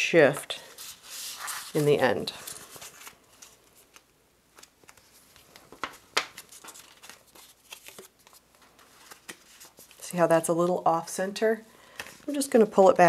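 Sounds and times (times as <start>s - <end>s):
paper scraping and rustling: 0.7s - 4.0s, 4.6s - 10.1s.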